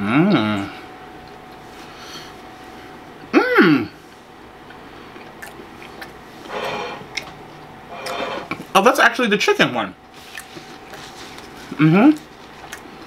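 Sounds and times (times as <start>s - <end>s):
man humming from the throat: 3.3s - 4.0s
chewing noise: 5.0s - 8.7s, 10.2s - 13.0s.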